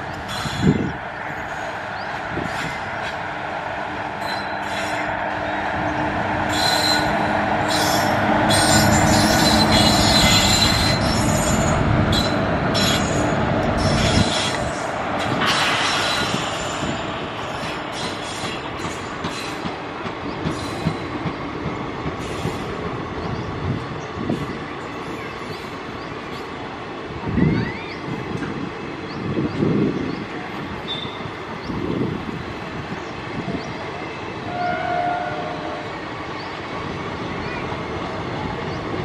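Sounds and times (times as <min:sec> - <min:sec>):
train rolling past: 0:00.0 - 0:39.0
train wheels squealing: 0:00.3 - 0:01.8, 0:04.2 - 0:05.1, 0:06.4 - 0:19.7, 0:20.4 - 0:21.2, 0:27.4 - 0:28.1, 0:30.8 - 0:31.3.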